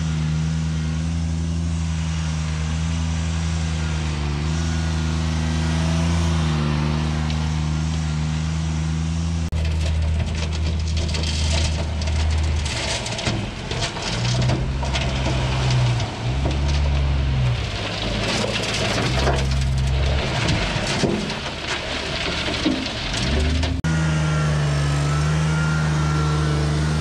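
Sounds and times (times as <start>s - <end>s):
heavy diesel engine running: 0.0s - 27.0s
loose rock crunching and rattling: 9.5s - 23.9s.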